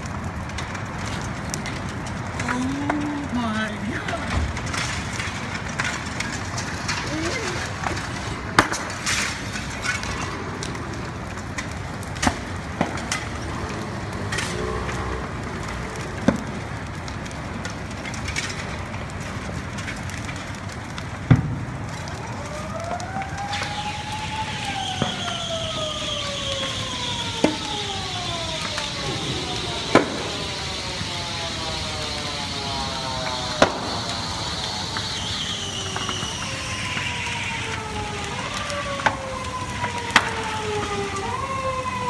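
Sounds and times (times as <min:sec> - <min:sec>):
sharp pops and bangs: 0:00.0 - 0:03.3, 0:03.9 - 0:42.0
building fire crackling: 0:00.0 - 0:42.0
siren winding up and falling: 0:22.2 - 0:42.0.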